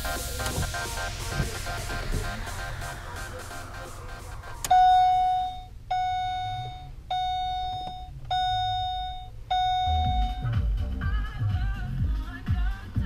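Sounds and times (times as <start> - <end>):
car warning chime: 0.4 - 10.6.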